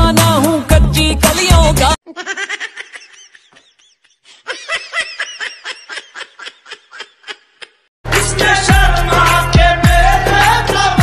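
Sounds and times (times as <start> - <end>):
person laughing: 2.0 - 7.9.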